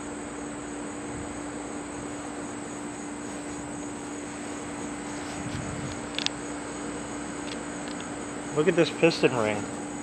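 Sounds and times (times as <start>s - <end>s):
high insect buzz: 0.0s - 10.0s
even hiss: 0.8s - 10.0s.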